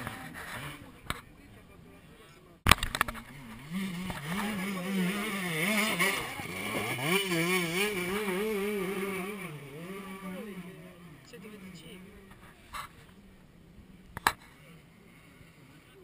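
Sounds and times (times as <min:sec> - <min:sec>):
motorcycle engine revving: 0:02.7 - 0:14.5.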